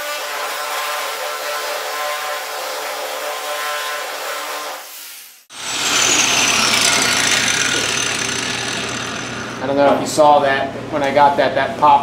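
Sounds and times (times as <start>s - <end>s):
angle grinder on steel panel: 5.5s - 9.7s.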